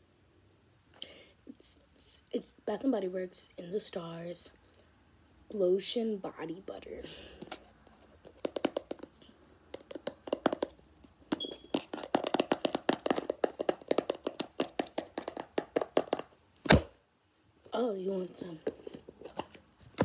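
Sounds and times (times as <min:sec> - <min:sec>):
fingers tapping on jar lid: 0:08.2 - 0:16.2
loud thump: 0:16.6 - 0:17.0.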